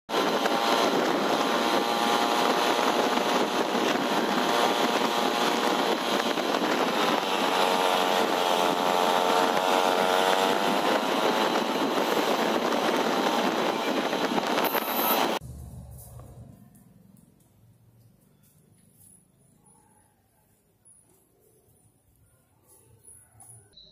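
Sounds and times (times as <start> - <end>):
road noise rushing: 0.1 - 16.8
motorbike engine drone: 0.1 - 17.5.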